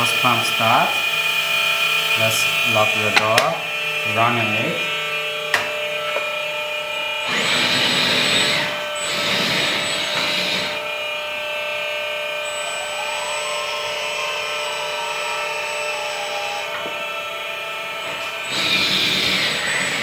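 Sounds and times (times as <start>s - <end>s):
hydraulic pumps whining: 0.0s - 20.0s
rising and falling whine: 0.0s - 20.0s
hydraulic hissing: 18.2s - 20.0s.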